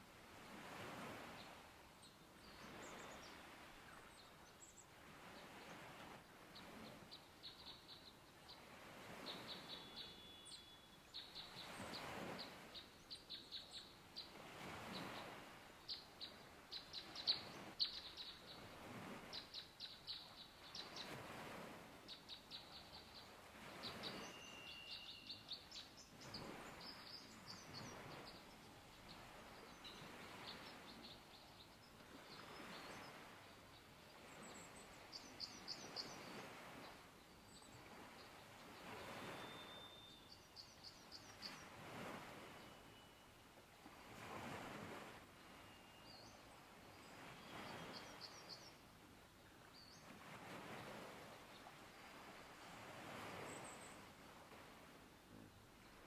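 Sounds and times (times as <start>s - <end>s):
small bird singing trills: 9.3s - 11.8s, 23.9s - 28.6s, 39.3s - 41.7s, 45.6s - 46.5s.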